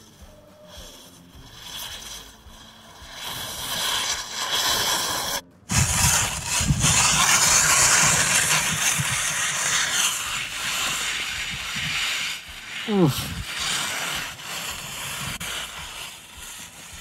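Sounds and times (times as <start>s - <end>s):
low rumble: 0.0s - 17.0s
skis scraping icy snow: 0.0s - 17.0s
wind buffeting microphone: 5.7s - 12.3s, 13.0s - 13.8s.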